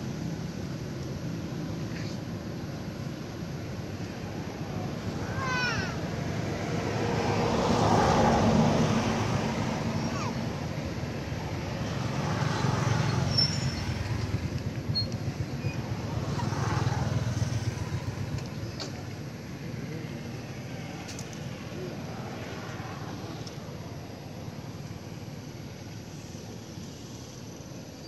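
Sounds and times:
vehicles passing: 0.0s - 28.0s.

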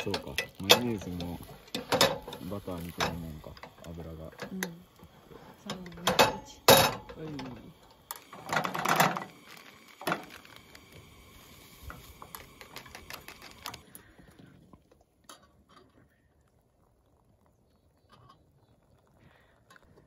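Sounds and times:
packets rustling: 8.2s - 13.9s.

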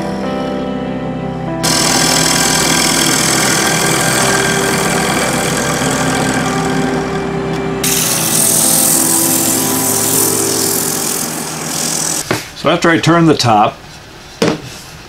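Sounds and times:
sandpaper hissing on spinning wood: 1.6s - 7.1s, 7.8s - 12.2s
wood lathe running: 1.6s - 12.2s
gouge cutting spinning wood: 1.6s - 12.3s.

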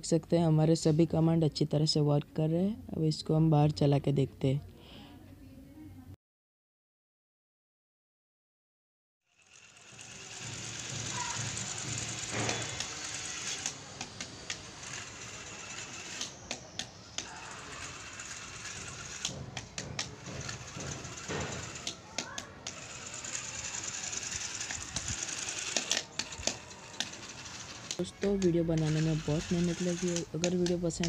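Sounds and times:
toy truck motor rattling: 9.3s - 31.0s
gearbox clicks: 24.6s - 31.0s.

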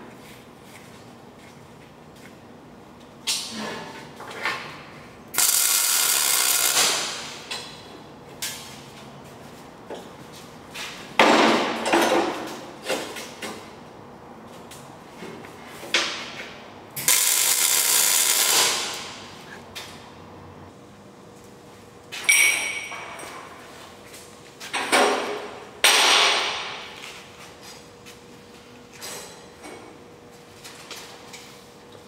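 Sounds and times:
welding arc bursts: 5.4s - 7.5s, 17.0s - 19.3s.

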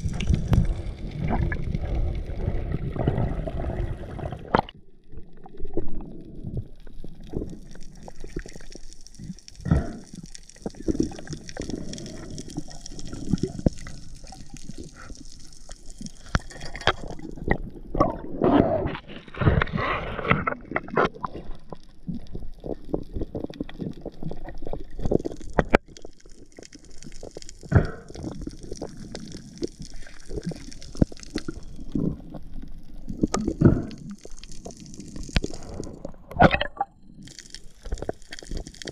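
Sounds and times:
underwater rushing and gurgling: 0.0s - 38.9s
sharp underwater clicks and knocks: 16.2s - 17.6s, 18.9s - 28.9s.

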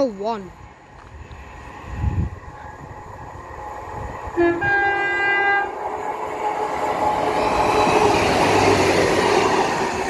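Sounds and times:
train rumbling past: 0.0s - 10.0s
two-tone train horn: 4.3s - 5.8s.

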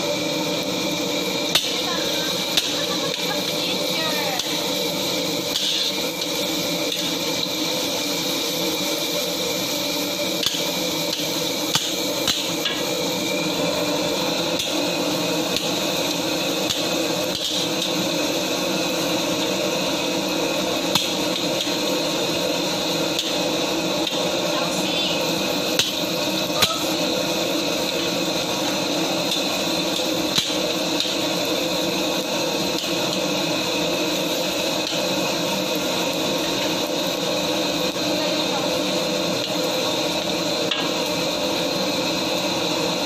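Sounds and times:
kitchen drone: 0.0s - 43.0s
vegetables frying in oil: 0.0s - 43.0s
spatula scraping a wok: 5.4s - 7.3s.

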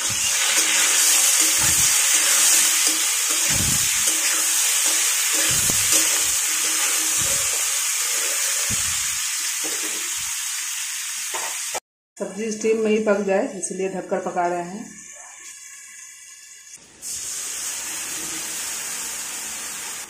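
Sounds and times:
metal spatula scraping pan: 0.0s - 10.1s
vegetables sizzling in oil: 0.0s - 11.8s, 14.9s - 20.0s.

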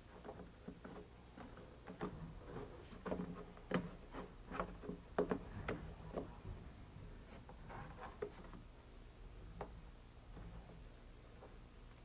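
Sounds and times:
rubber knocking against plastic: 0.1s - 6.4s.

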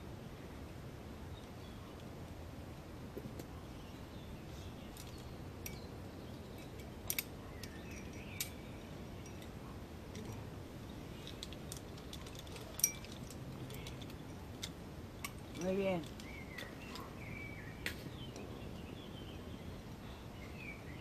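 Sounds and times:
carabiners clicking: 11.2s - 17.1s.

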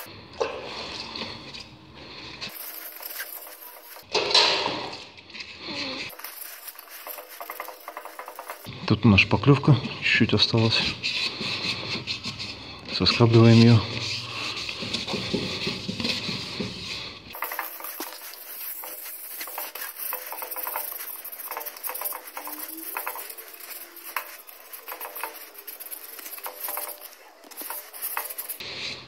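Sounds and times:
sandpaper scraping metal: 5.8s - 8.7s, 10.7s - 29.0s.

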